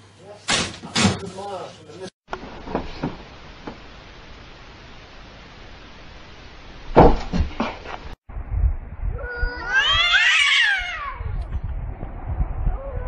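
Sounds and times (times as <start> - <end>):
cats yowling: 9.2 - 11.4.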